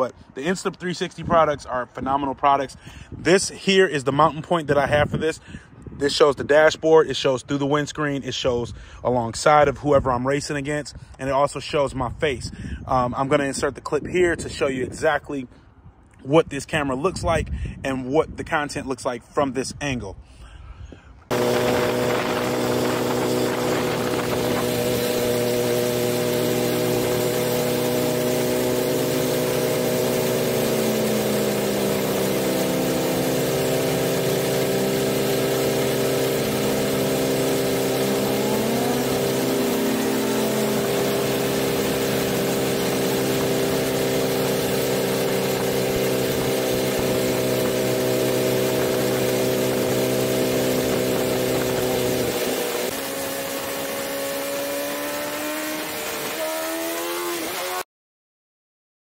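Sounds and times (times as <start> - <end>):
motorcycle engine running: 21.3 - 57.8
second engine dipping and rising: 21.3 - 57.8.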